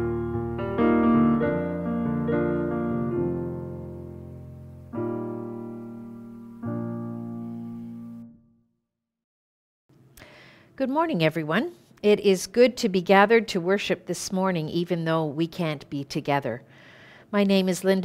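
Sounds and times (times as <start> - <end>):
digital piano chords: 0.0 - 8.6.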